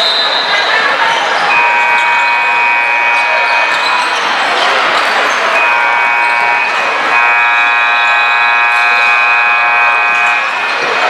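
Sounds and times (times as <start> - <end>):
scoreboard buzzer horn: 1.5 - 4.0, 5.5 - 10.9.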